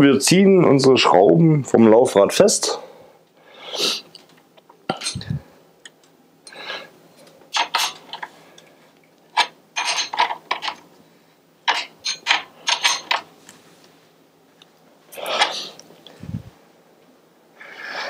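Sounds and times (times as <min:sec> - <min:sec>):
wrench clicking and clanking: 0:11.7 - 0:13.3.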